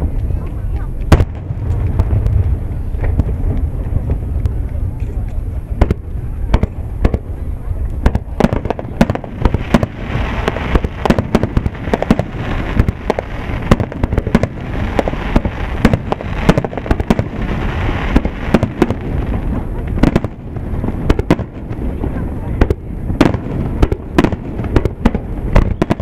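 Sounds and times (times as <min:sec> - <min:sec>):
fireworks bursting with sharp bangs: 0:00.0 - 0:26.0
hiss of smaller firework reports: 0:00.0 - 0:26.0.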